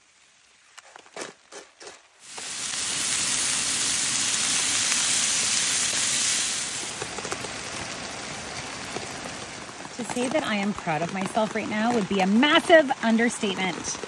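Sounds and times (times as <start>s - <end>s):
food sizzling in a pan: 2.1s - 7.9s.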